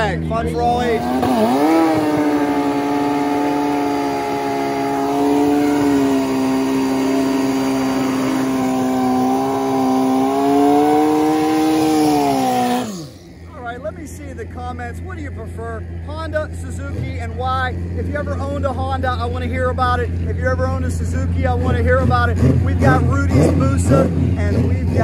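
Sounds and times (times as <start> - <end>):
motorcycle engine revving high: 0.0 - 14.0.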